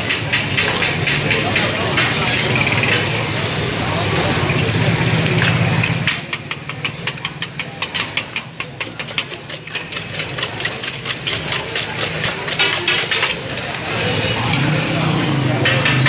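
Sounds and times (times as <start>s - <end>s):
whisk clattering in steel bowl: 5.5s - 16.0s.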